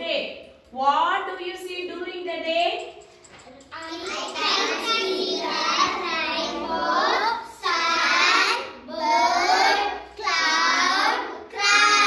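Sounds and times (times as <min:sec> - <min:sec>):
children chanting: 0:03.8 - 0:12.0.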